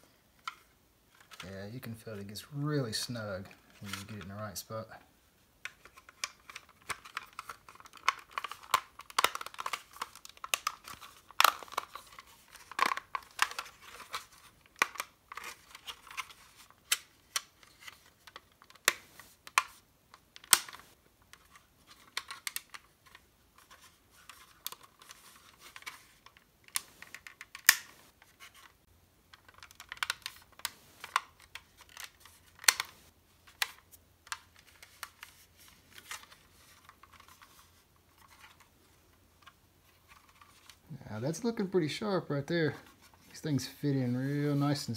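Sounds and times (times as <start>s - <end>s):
plastic parts clicking and tapping: 0.4s - 1.5s, 5.6s - 40.8s
plastic snaps: 5.6s - 28.7s, 29.3s - 37.6s.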